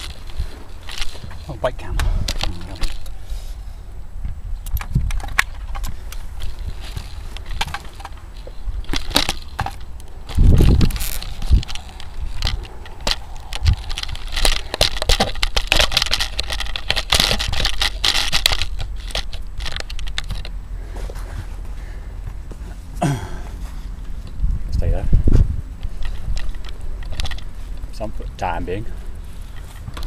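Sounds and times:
camera handling rustling and scrapes: 0.0s - 3.6s, 4.8s - 21.6s, 25.8s - 27.9s, 29.2s - 30.0s.

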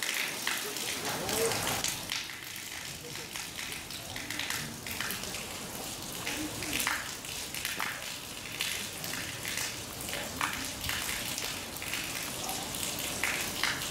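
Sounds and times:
faint distant voices: 2.8s - 13.7s.

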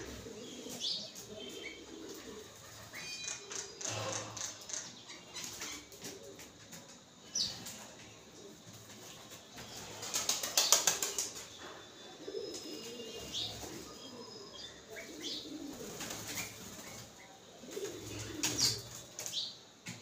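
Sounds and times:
small bird wings flapping: 10.0s - 11.4s.

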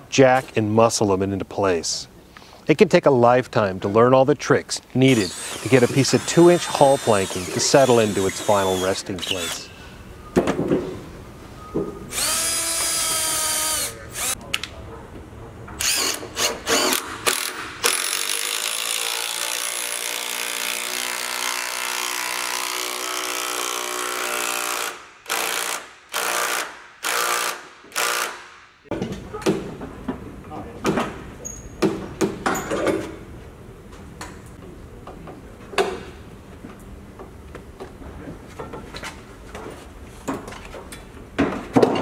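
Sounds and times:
cordless drill running into wood: 5.1s - 9.7s, 12.1s - 14.4s.

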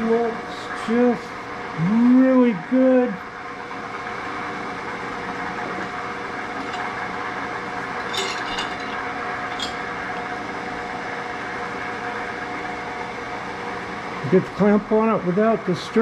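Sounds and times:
steady motor hum: 0.0s - 16.0s
steel clamp clinking on metal: 8.1s - 9.8s.

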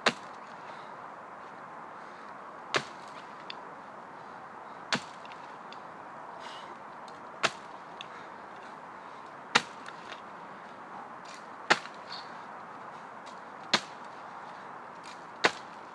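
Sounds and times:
sword chopping into wood: 0.0s - 0.4s, 2.7s - 3.2s, 4.9s - 5.4s, 7.4s - 7.7s, 9.5s - 10.2s, 11.3s - 12.0s, 13.7s - 14.0s, 15.1s - 15.8s.

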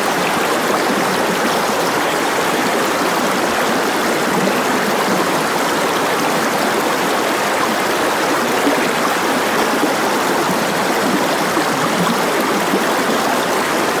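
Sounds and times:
running water rushing: 0.0s - 14.0s.

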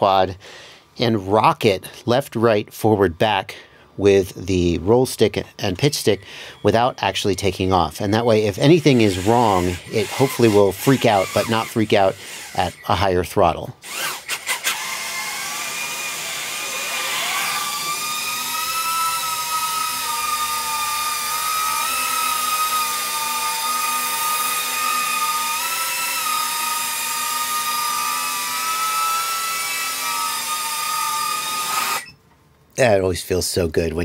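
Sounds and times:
drone motors whining: 13.8s - 32.2s.

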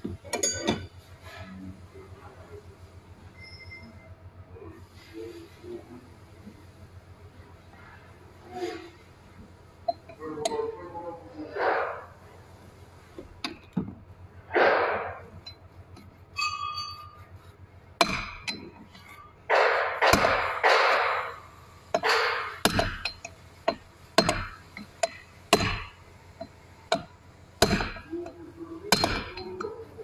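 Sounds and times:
hammer tapping metal: 0.0s - 1.0s, 9.8s - 10.7s, 14.6s - 30.0s
handling noise: 18.0s - 30.0s.

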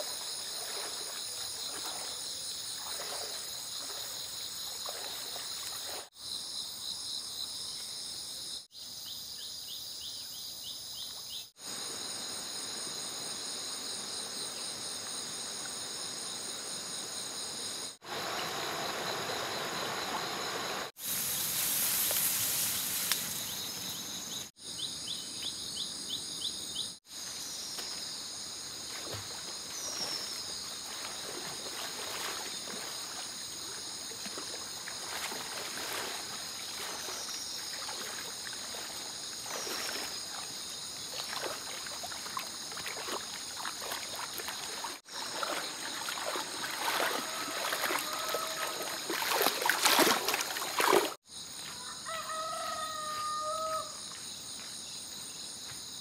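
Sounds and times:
high insect chorus: 0.0s - 56.0s
rooster crowing: 47.0s - 48.9s, 51.8s - 54.0s.

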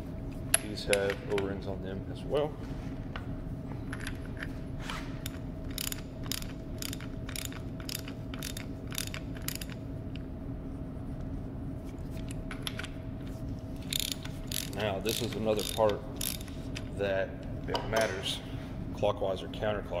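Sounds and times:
ratchet wrench clicking: 5.2s - 9.8s, 13.8s - 16.6s.

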